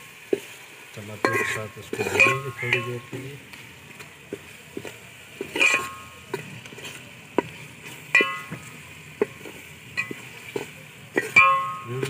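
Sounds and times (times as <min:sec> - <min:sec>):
low sizzle: 0:00.0 - 0:12.0
spoon clanging on metal pot: 0:01.2 - 0:03.2, 0:05.4 - 0:06.4, 0:08.1 - 0:10.3, 0:11.2 - 0:12.0
spoon stirring in pot: 0:01.2 - 0:11.9.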